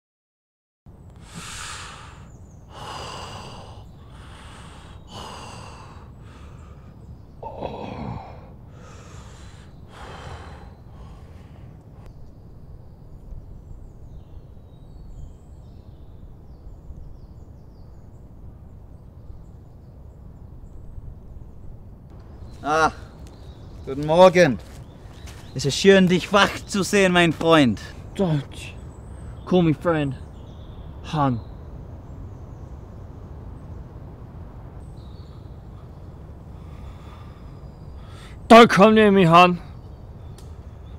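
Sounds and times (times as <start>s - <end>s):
faint birdsong: 0.9s - 40.9s
man gasping: 1.2s - 6.8s
man groaning: 7.4s - 8.5s.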